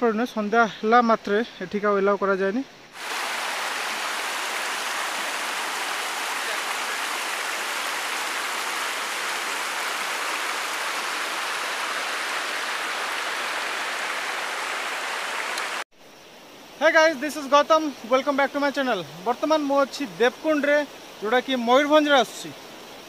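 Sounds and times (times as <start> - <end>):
stream running over rocks: 3.0 - 15.9.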